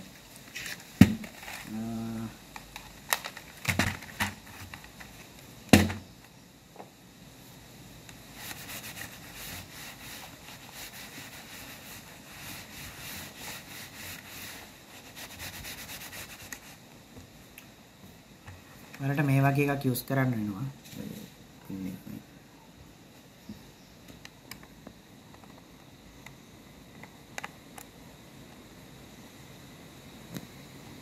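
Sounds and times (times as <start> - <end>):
tissue rubbing on plastic: 8.3 - 16.8.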